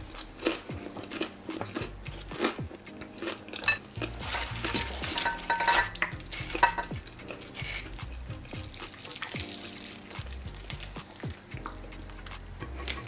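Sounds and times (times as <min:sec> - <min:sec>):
cutlery clinking on a plate: 0:03.6 - 0:07.9.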